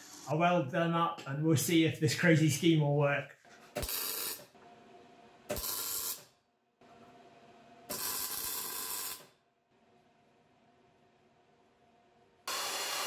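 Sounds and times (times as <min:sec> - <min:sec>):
arc welding hissing bursts: 0:05.5 - 0:06.2, 0:12.5 - 0:13.0.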